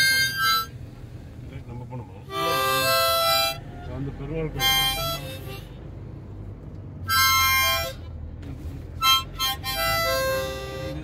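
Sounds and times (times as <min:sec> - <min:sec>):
harmonica playing: 0:00.0 - 0:00.8, 0:02.3 - 0:05.8, 0:07.0 - 0:08.3, 0:09.0 - 0:11.0
low car cabin rumble: 0:00.0 - 0:11.0.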